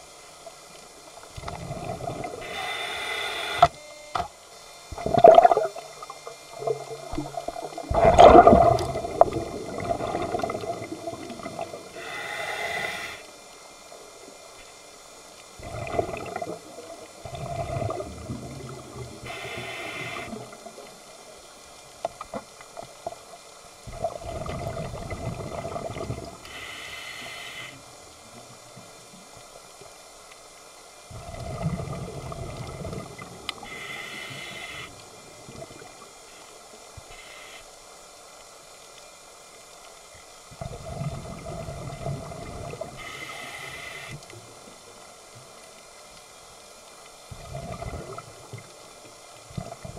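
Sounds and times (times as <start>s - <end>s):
scuba regulator bubbling exhale: 1.4s - 3.7s, 4.9s - 13.2s, 15.6s - 20.8s, 23.8s - 27.8s, 31.1s - 36.0s, 40.5s - 44.2s, 47.3s - 48.6s
regulator hiss on inhale: 1.4s - 3.8s, 11.8s - 13.9s, 19.0s - 20.8s, 26.4s - 28.1s, 33.5s - 35.4s, 36.2s - 38.2s, 42.7s - 44.4s.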